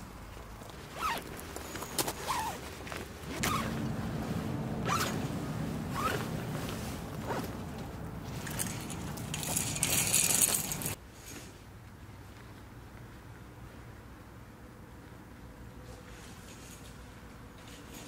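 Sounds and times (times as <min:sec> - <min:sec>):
heavy fabric rustling over gravel: 0:02.4 - 0:11.0.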